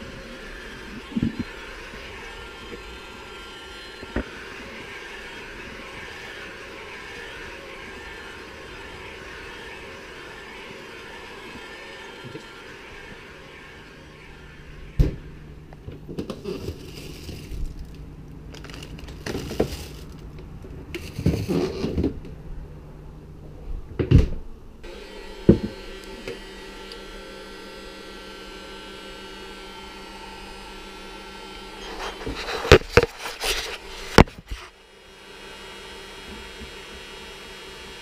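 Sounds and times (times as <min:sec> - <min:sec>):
steady hum: 0:00.0 - 0:21.3.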